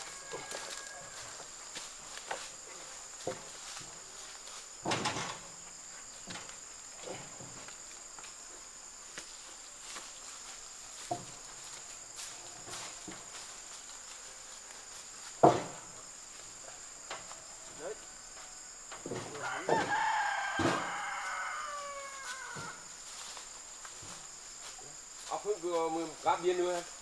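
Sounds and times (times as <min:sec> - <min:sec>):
rooster crowing: 0:00.0 - 0:01.8, 0:17.4 - 0:22.9
high insect buzz: 0:00.0 - 0:27.0
wooden planks knocking: 0:04.8 - 0:07.7, 0:11.0 - 0:11.7, 0:15.4 - 0:16.0, 0:19.0 - 0:21.0.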